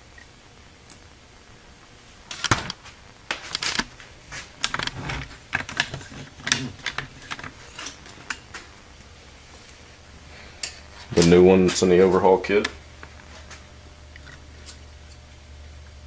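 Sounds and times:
metal parts clinking on workbench: 2.3 - 2.8, 3.5 - 3.9, 4.6 - 8.4.

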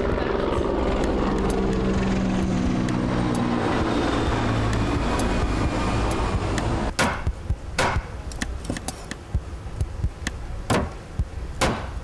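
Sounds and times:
helicopter flying over: 0.0 - 8.2.

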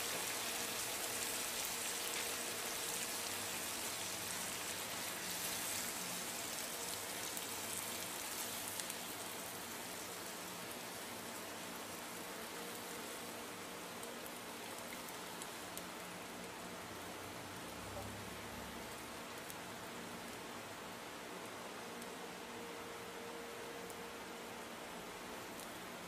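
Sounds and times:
food sizzling in a wok: 0.0 - 20.3.

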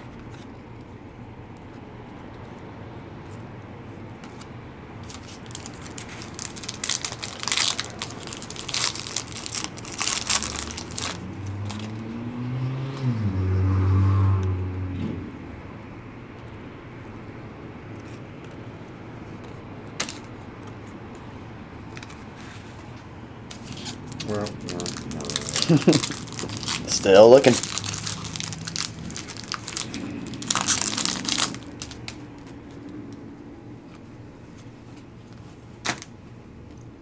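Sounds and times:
foil wrappers crinkling: 5.0 - 11.9, 23.5 - 32.6
loud low hum: 7.2 - 16.2, 23.1 - 33.8.

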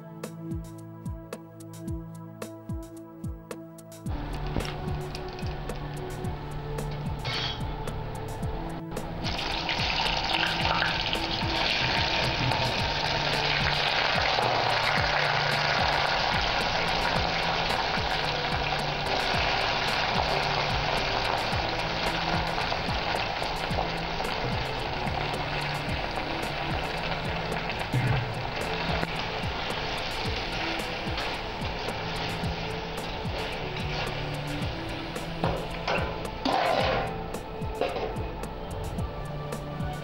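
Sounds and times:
plantain frying in hot oil: 9.0 - 37.3.

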